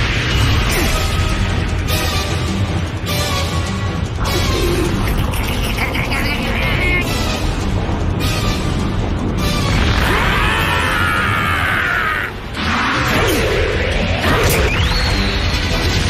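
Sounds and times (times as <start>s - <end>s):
dramatic music: 0.0s - 16.0s
drawn-out battle cry: 9.7s - 14.7s.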